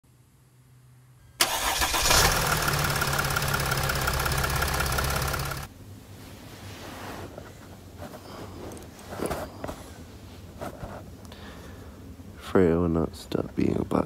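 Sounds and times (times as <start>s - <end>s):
diesel engine running: 1.4s - 5.7s
diesel engine starting: 1.4s - 5.7s.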